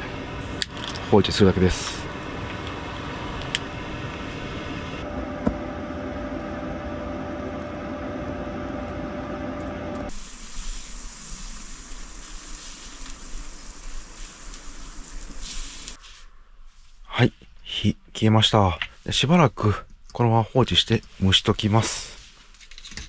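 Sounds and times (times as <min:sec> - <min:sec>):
rice pot hissing over flame: 0:05.0 - 0:16.3.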